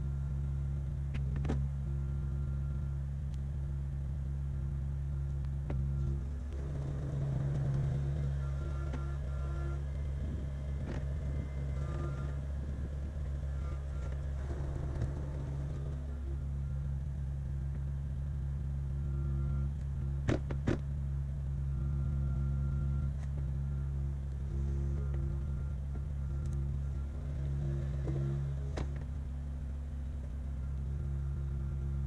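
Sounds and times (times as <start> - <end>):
excavator diesel engine running: 0.0 - 32.0
faint high-pitched tone: 7.1 - 17.3, 18.8 - 19.8.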